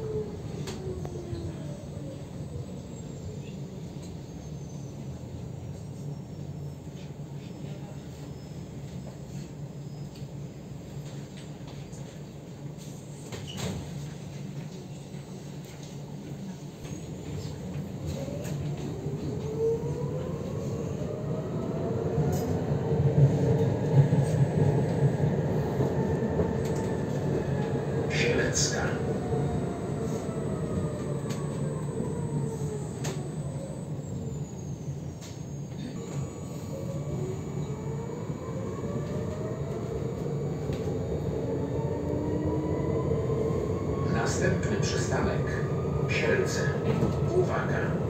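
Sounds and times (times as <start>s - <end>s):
tram motors whining: 15.9s - 48.0s.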